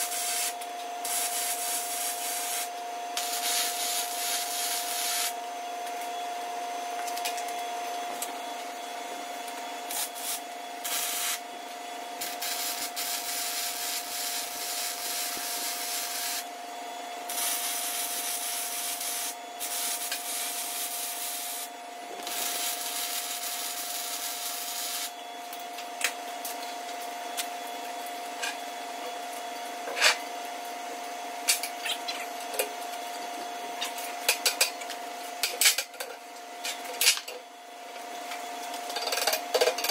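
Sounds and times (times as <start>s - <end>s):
grinder grinding steel: 0.0s - 5.4s, 9.8s - 11.5s, 12.2s - 16.5s, 17.3s - 25.1s.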